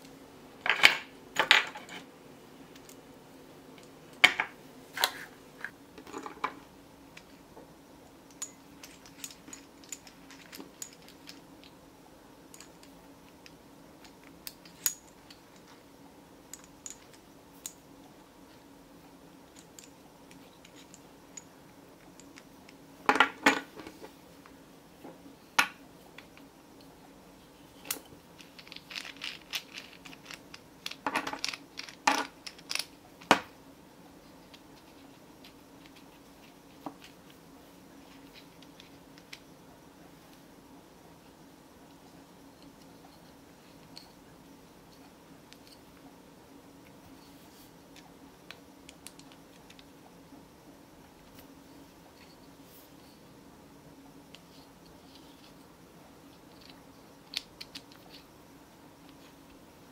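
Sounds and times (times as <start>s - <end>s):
metal parts clicking and clinking: 8.3s - 11.8s, 12.5s - 15.8s, 16.5s - 17.8s, 19.5s - 22.5s, 27.8s - 33.4s, 56.3s - 58.3s.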